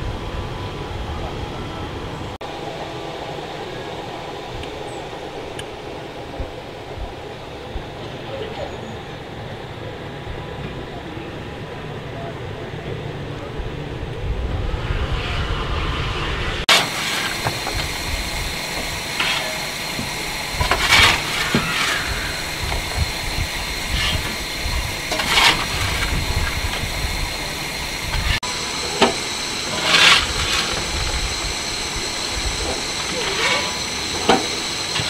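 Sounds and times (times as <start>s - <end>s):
steam locomotive hissing: 0.0s - 35.0s
high thin whine: 14.6s - 35.0s.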